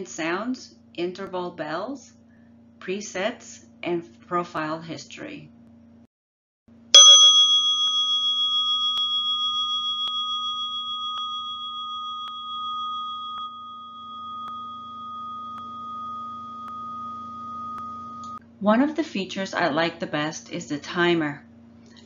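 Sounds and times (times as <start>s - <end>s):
singing bowl ringing: 7.0s - 18.4s.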